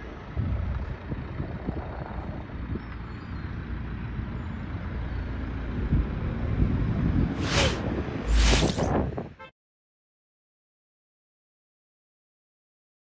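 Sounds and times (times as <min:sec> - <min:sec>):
low rumble of street noise: 0:00.0 - 0:09.4.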